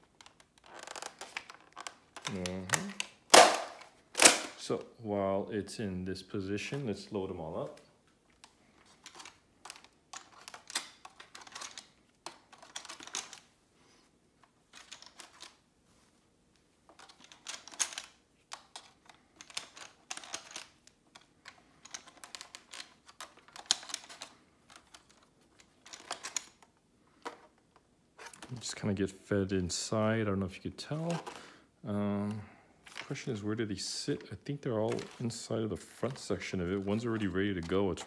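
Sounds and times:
plastic clicking and rattling: 0.0s - 4.6s, 8.3s - 13.5s, 16.9s - 28.6s, 34.9s - 38.0s.

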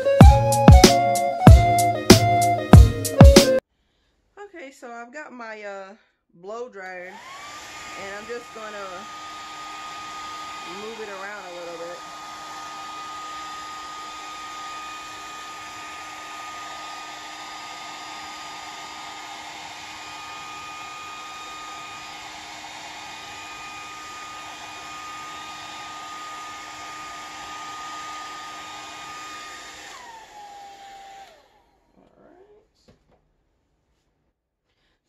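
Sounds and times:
hair dryer blowing: 7.2s - 31.8s
motor winding down: 7.2s - 31.9s.

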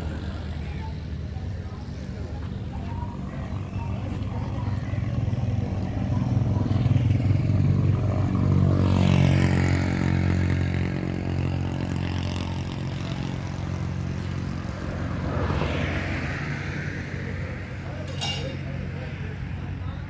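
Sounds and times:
vehicle engine idling: 0.0s - 15.4s
vehicle passing by: 0.0s - 20.0s.

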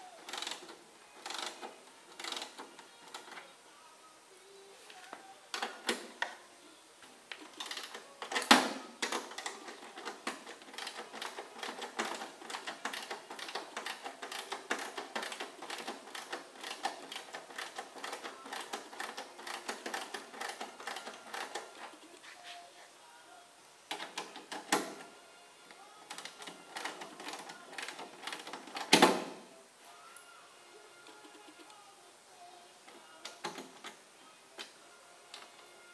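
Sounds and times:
hand tool rapid clicks: 0.3s - 2.6s.

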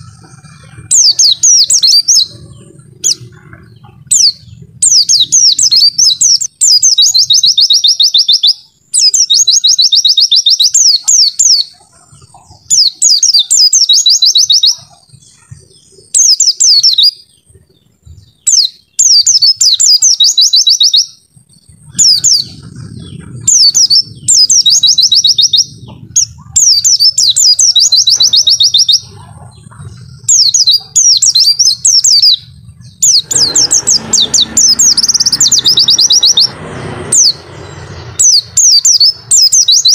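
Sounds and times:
low rumble: 0.0s - 7.0s, 21.3s - 39.9s
white-eye bird trilling song: 0.0s - 39.9s.

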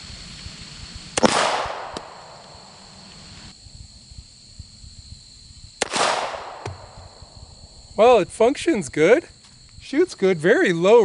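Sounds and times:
pistol shots with echo: 1.2s - 2.3s, 5.8s - 6.9s.

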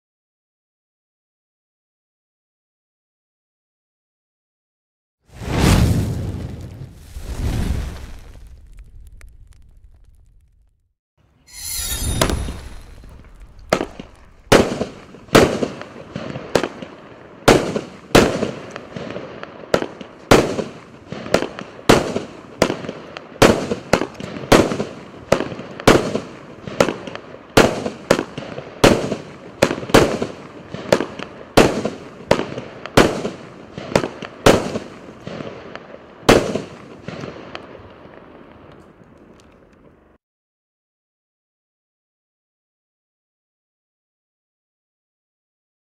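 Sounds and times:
firework bangs: 5.3s - 10.7s, 11.5s - 39.0s
firework crackling: 5.3s - 10.9s, 11.5s - 39.4s
firework fuse hissing: 6.8s - 10.4s, 11.5s - 15.1s.

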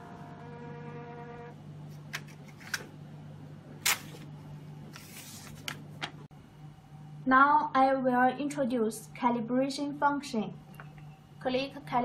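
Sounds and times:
printer motor whine: 0.0s - 1.6s
steady low hum: 0.0s - 12.0s.

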